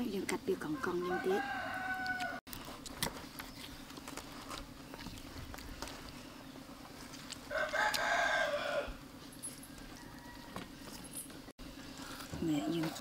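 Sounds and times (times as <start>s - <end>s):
rooster crowing: 0.8s - 2.4s, 7.5s - 9.0s, 9.6s - 11.0s.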